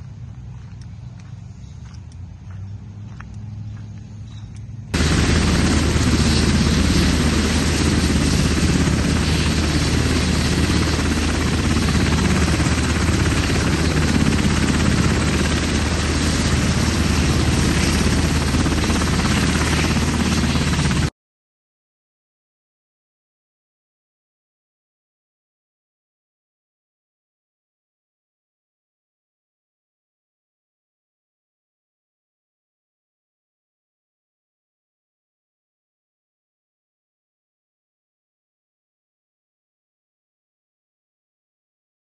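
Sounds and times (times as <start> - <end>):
quiet outdoor sound: 0.0 - 20.0
helicopter rotor and turbine noise: 0.0 - 21.1.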